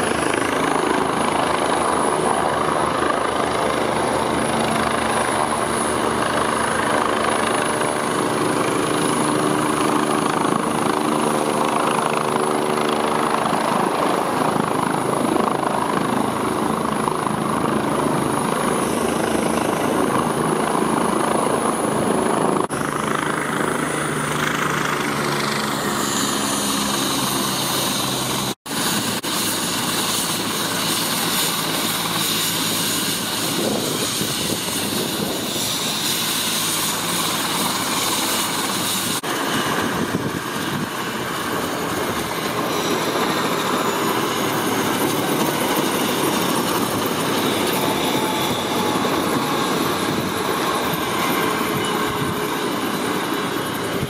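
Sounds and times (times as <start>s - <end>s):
helicopter rotor turning: 0.0s - 54.0s.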